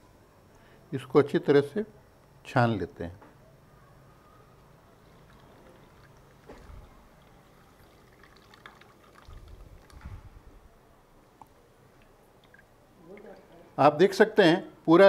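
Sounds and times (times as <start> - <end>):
juice trickling into glass bowl: 5.0 - 10.3, 12.0 - 13.6.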